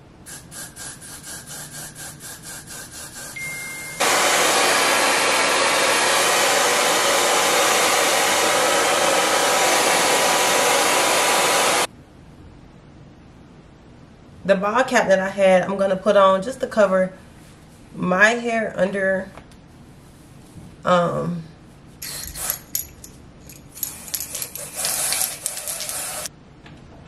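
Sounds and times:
hair dryer running: 3.4s - 11.9s, 24.6s - 26.3s
aerosol hair spray hisses: 24.0s - 26.3s.

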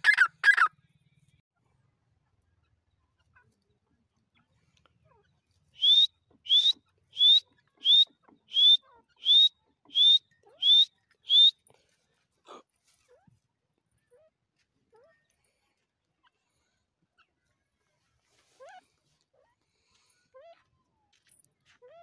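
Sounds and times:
bird rising whistled calls: 5.8s - 11.5s.

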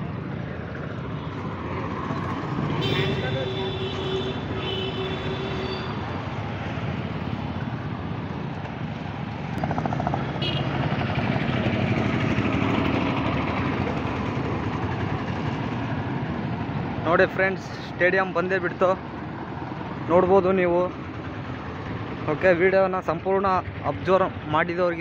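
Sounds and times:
motorcycles passing close: 0.0s - 17.9s
engine and road noise: 0.0s - 25.0s.

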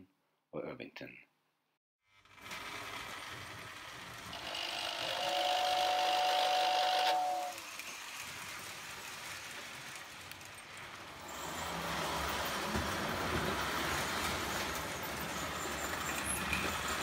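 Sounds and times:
toy train rolling on track: 2.1s - 17.0s
toy train whistle: 4.4s - 7.9s.

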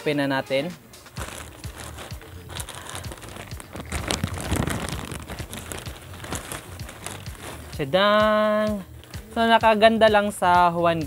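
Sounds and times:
plastic mailer crinkling: 1.1s - 8.2s.

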